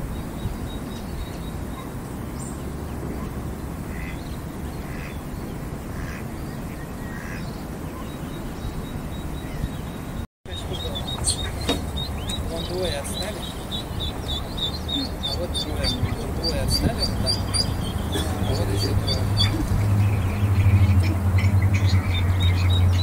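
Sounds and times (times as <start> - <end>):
duck quacks: 3.9 - 4.2, 4.8 - 5.2.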